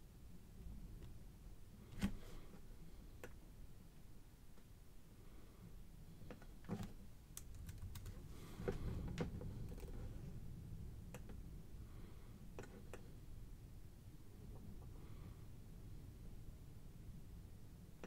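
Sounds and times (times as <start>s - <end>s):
keyboard and mouse clicks: 6.2s - 8.2s.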